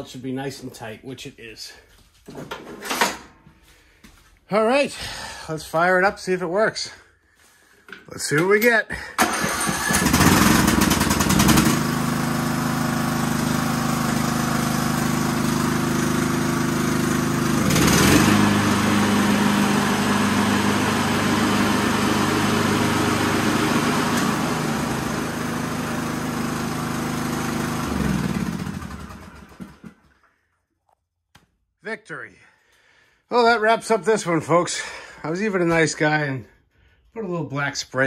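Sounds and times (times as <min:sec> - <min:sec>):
lawn tractor engine running: 0:09.2 - 0:30.3
rushing noise of mower blades: 0:09.2 - 0:30.4.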